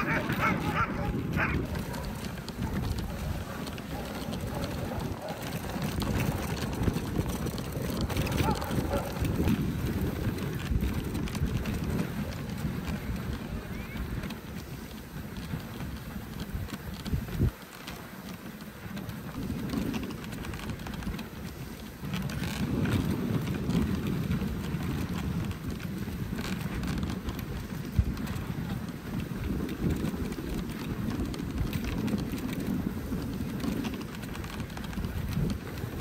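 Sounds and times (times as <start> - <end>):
sled runners scraping on snow: 0.0 - 36.0.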